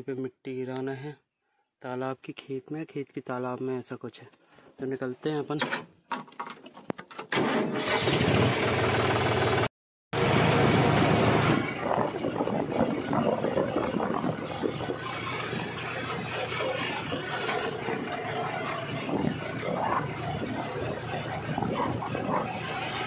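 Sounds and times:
tractor diesel engine running: 7.4 - 9.6, 10.2 - 23.0.

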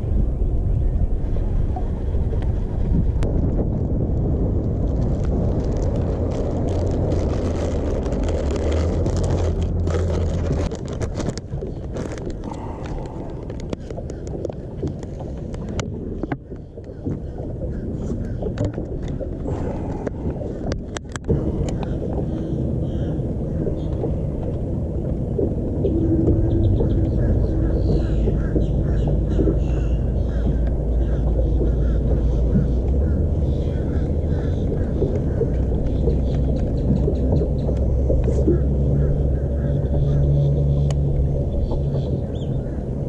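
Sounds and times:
boat engine humming: 0.0 - 43.0
wind on microphone: 0.0 - 43.0
plastic bag crinkling: 4.8 - 14.5.

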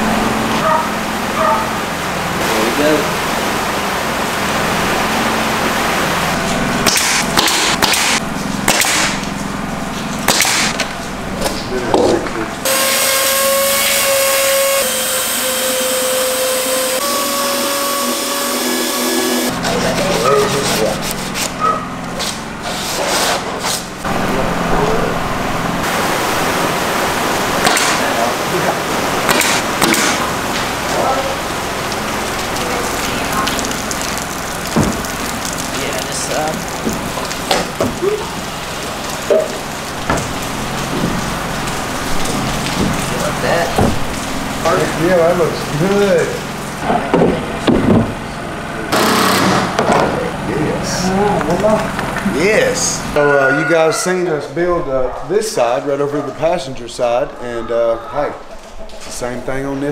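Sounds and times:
power saw cutting plywood: 6.4 - 9.4, 12.6 - 24.0, 27.6 - 31.1, 40.0 - 52.3.

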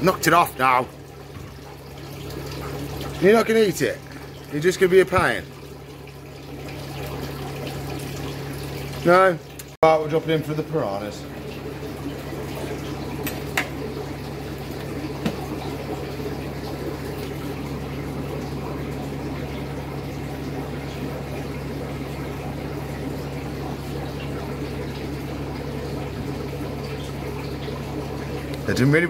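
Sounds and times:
aquarium water bubbling: 0.0 - 29.0
low circulation hum: 0.0 - 29.0.

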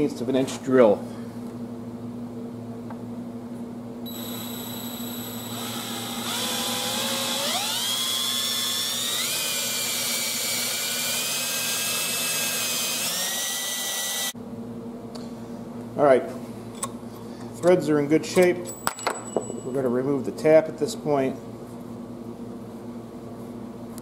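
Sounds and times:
power drill drilling into metal: 4.1 - 14.4.

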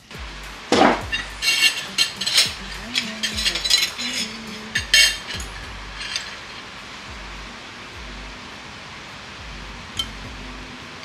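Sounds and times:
background music with low beat: 0.0 - 11.0
utensils clinking against dishes: 0.7 - 6.8.

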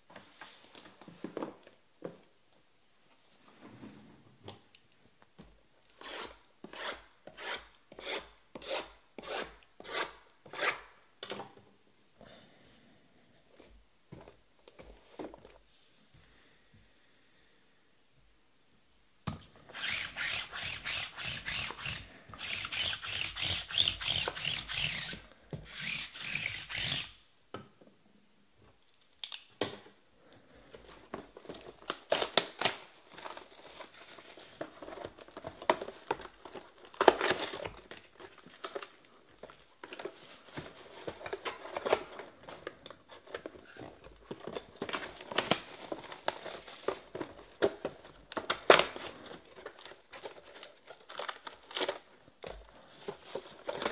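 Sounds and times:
plastic shrink wrap tearing: 31.9 - 38.0.

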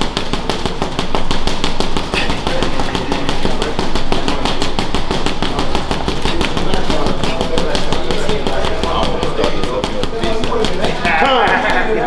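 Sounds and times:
gloves punching heavy bag: 0.0 - 12.0.

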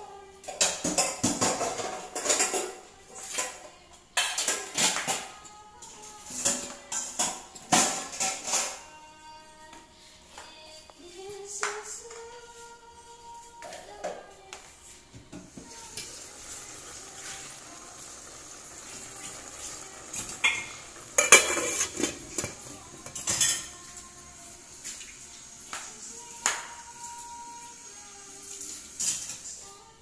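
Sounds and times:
metal pot lid clanking: 20.1 - 23.7.

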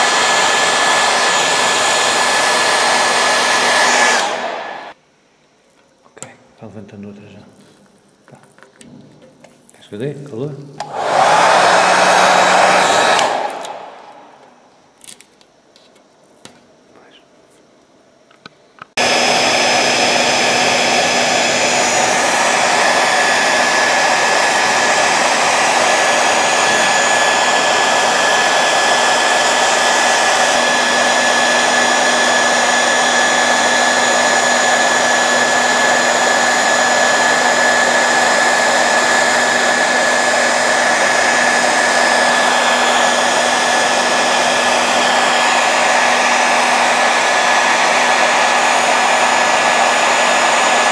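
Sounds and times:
hair dryer running with whine: 0.0 - 5.0, 10.8 - 14.6, 19.0 - 50.9
hair dryer spinning down: 0.0 - 5.0, 10.8 - 14.6, 19.0 - 50.9.

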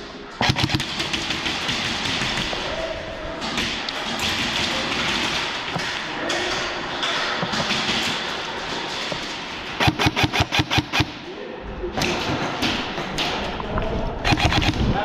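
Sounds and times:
rapid airsoft gunfire: 0.4 - 2.7, 9.8 - 11.2, 14.2 - 15.0.

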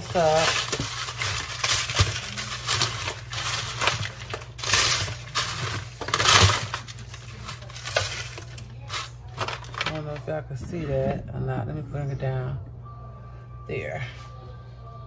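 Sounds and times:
cornbread crunching and rustling: 0.0 - 10.3
foil pan crinkling: 0.0 - 10.4.

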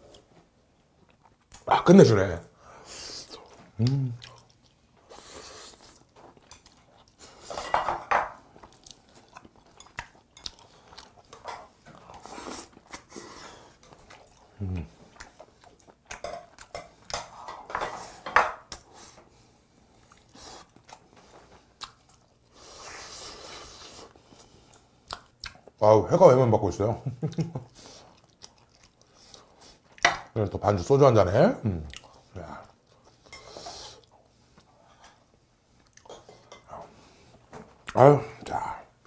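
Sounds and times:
chewing: 0.1 - 1.6, 3.2 - 7.6, 8.4 - 17.4, 19.9 - 25.8, 27.2 - 30.2, 31.8 - 38.0.

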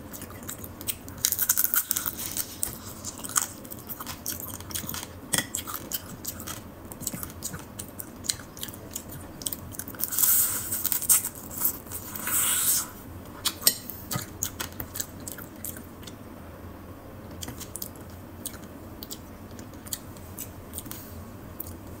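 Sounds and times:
biting and chewing: 0.0 - 12.1.

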